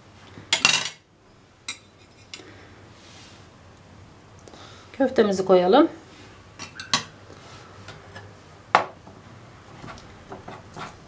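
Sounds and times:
tableware clicking and knocking: 0.5s - 1.0s.

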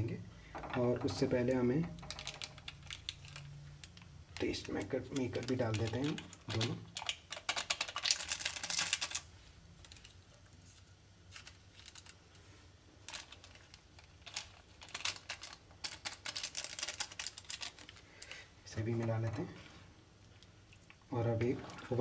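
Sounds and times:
foil sachets crinkling: 1.9s - 12.2s, 13.0s - 18.4s.

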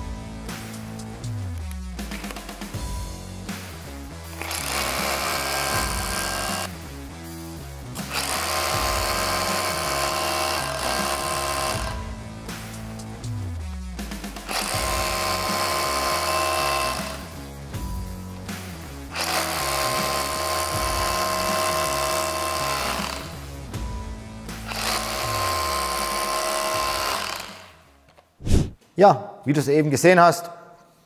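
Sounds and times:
background music with steady beat: 0.0s - 29.1s
rotary hammer drilling into concrete: 4.2s - 6.8s, 8.0s - 12.0s, 14.4s - 17.5s, 19.1s - 23.6s, 24.6s - 27.8s.

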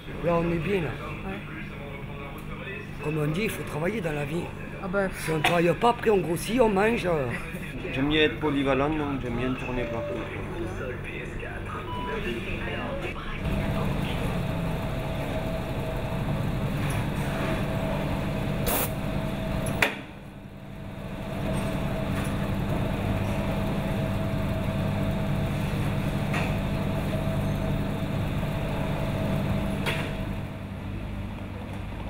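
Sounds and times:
laundry machinery humming: 12.8s - 32.0s.

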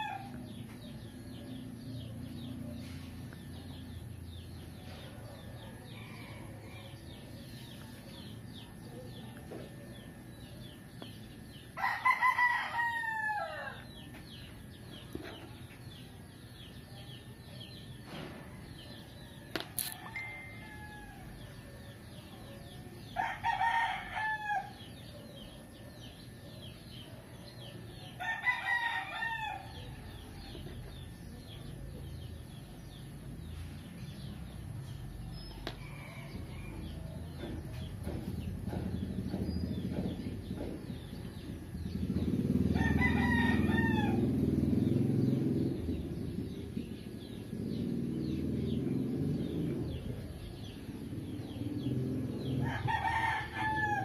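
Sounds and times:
rooster crowing: 0.0s - 0.4s, 11.8s - 14.0s, 19.9s - 21.7s, 23.1s - 24.9s, 28.2s - 30.3s, 42.6s - 44.5s, 52.5s - 54.0s.

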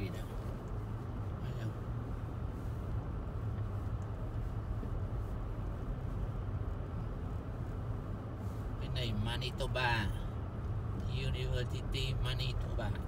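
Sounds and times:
car engine and tyre rumble: 0.0s - 13.0s.

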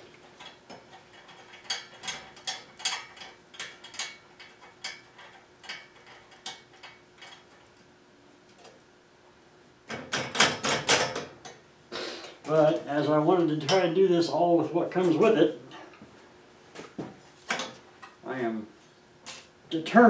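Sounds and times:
metal clatter: 0.2s - 7.7s.

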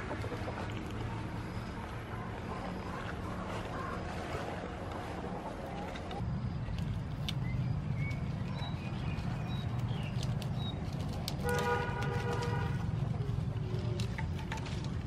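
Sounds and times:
steady low rumble: 0.0s - 11.4s
small birds chirping: 6.4s - 11.3s
vine shoots rustling and snapping: 9.6s - 15.0s.

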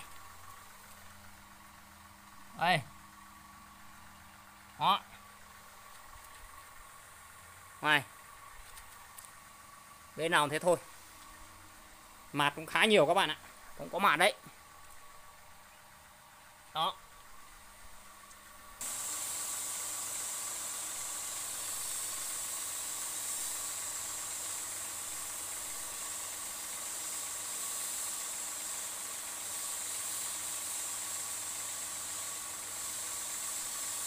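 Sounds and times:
faint machine hum: 0.0s - 34.0s
water spray hissing: 18.8s - 34.0s.

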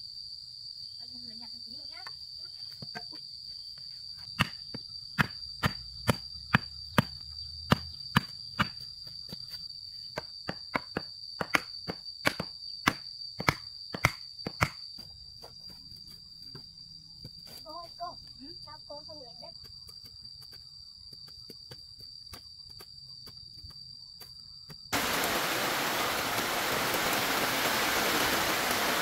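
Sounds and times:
insect buzzing: 22.9s - 29.0s.

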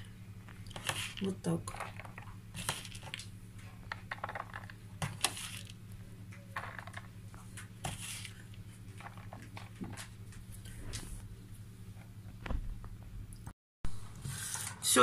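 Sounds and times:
low steady hum: 0.0s - 15.0s
nuts dropping into a mould: 3.9s - 4.8s, 6.6s - 7.1s.

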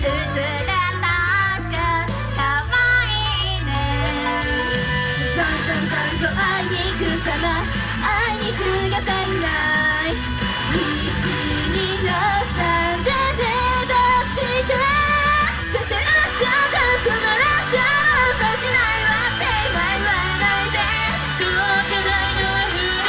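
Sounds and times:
person singing: 0.0s - 23.0s
pop-rock music with bass: 0.0s - 23.0s.

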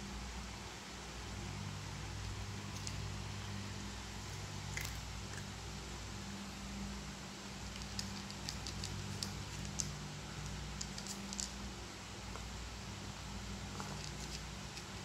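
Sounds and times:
cats crunching dry kibble: 7.7s - 9.9s, 10.5s - 11.6s, 13.7s - 15.0s.

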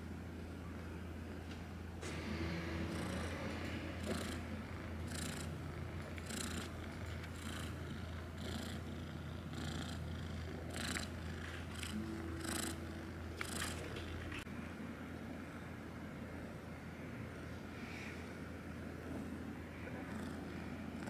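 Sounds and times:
cat purring: 2.1s - 14.4s, 18.8s - 21.0s.

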